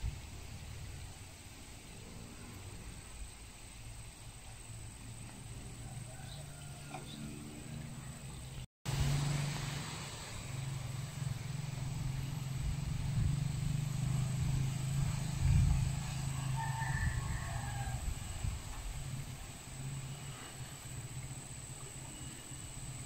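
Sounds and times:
rooster crowing faintly: 5.4s - 8.2s, 15.7s - 18.8s.

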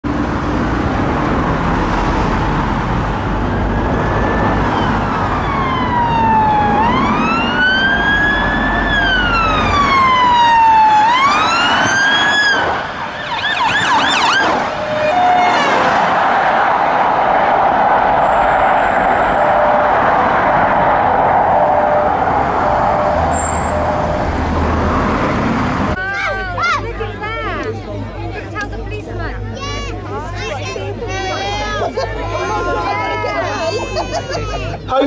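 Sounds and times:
passing traffic: 0.0s - 35.0s
police siren wailing and yelping: 3.6s - 16.1s, 18.0s - 25.3s.

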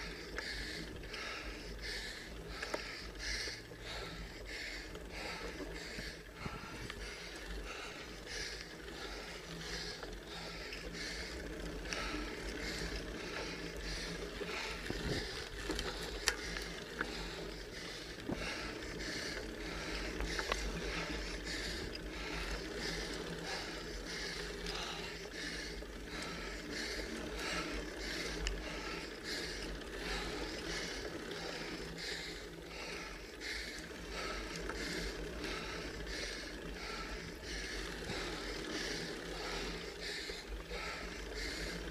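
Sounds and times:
rhythmic pedal strokes: 0.0s - 41.9s
rider breathing hard: 0.0s - 41.9s
sharp bicycle clicks: 0.0s - 41.9s
wind and road rumble: 0.3s - 31.6s.

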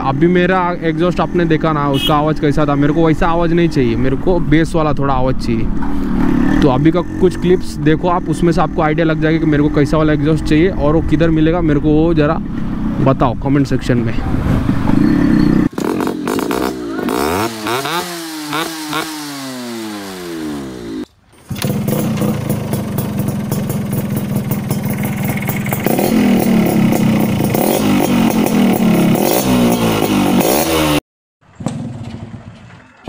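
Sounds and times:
two-stroke motorcycle engine: 14.9s - 33.0s.

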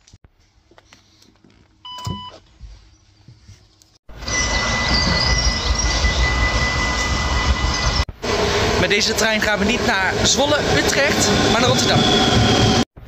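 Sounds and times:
train approaching rushing noise: 4.1s - 12.9s.

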